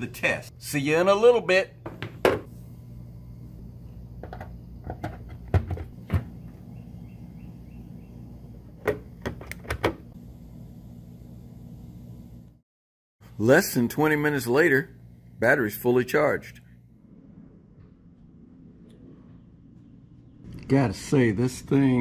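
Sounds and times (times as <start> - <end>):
low hum: 2.0 - 12.6, 14.8 - 20.7.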